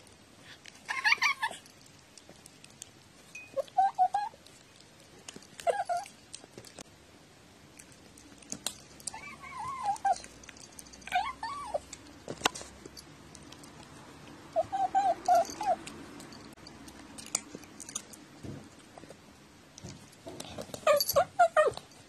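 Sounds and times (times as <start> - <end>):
cat mewing and chirping: 0.9 - 1.6, 3.5 - 4.4, 5.6 - 6.2, 9.1 - 10.4, 11.0 - 11.9, 14.5 - 16.0, 20.8 - 21.9.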